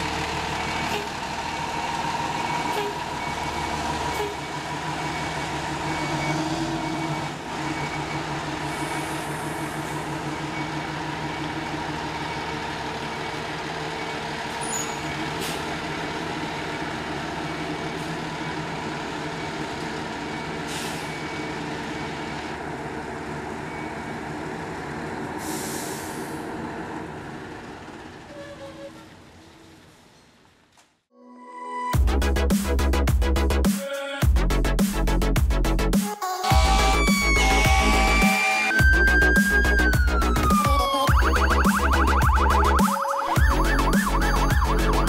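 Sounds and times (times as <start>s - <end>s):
diesel engine idling: 0.0s - 28.4s
reversing beeper: 2.3s - 22.3s, 36.5s - 45.0s
air brake hiss: 20.7s - 21.1s, 25.4s - 26.4s.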